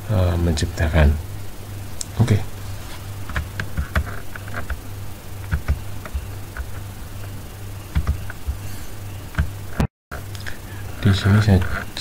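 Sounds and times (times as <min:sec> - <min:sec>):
low electrical hum: 0:00.0 - 0:12.0
computer mouse clicks: 0:07.9 - 0:08.6.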